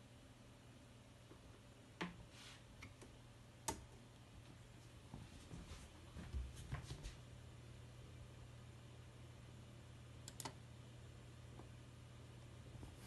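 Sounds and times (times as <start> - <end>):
steady low hum: 0.0 - 13.0
sharp clicks: 10.2 - 10.6.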